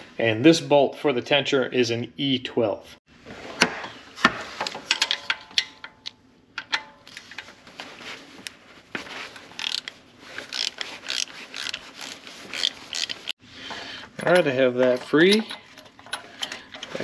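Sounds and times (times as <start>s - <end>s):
ratchet wrench clicking: 9.6s - 9.9s, 10.5s - 13.3s.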